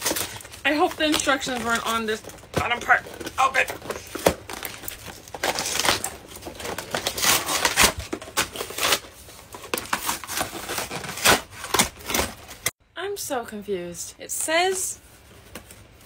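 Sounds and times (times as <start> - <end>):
cardboard box being torn: 3.5 - 12.7.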